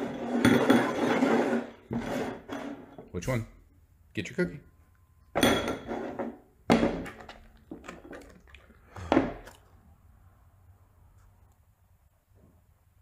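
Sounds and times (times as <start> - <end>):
bowls clattering on wooden table: 0.1 - 3.0, 5.4 - 8.3.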